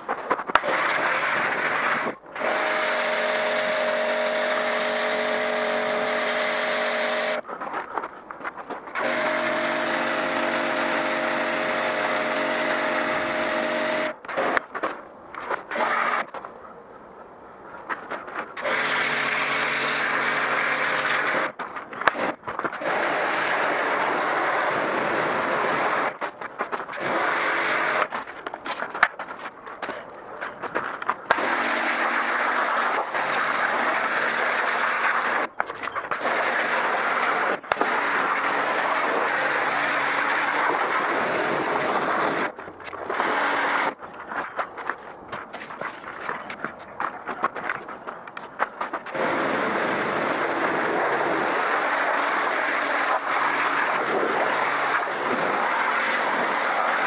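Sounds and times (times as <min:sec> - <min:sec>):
pressure washer pump humming: 0:00.6 - 0:07.4, 0:09.0 - 0:14.2, 0:18.6 - 0:21.5.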